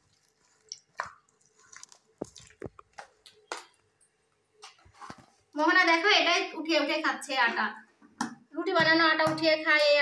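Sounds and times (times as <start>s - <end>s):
dough squelching: 0.0s - 6.4s.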